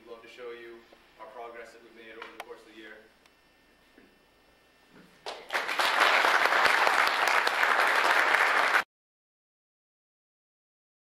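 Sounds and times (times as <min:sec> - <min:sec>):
audience applauding: 0:05.3 - 0:08.9.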